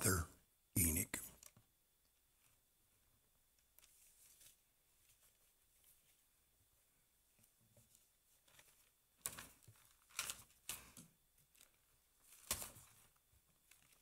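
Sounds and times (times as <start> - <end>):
paper pages rustling: 3.7 - 6.3, 7.4 - 14.0.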